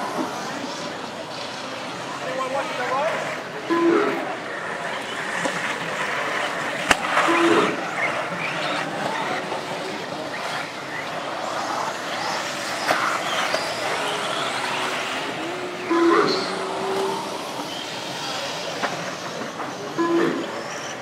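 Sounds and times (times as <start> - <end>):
rc car motor and gear whine: 0.0 - 21.0
tyres on dirt: 0.0 - 21.0
short beep: 15.8 - 16.7.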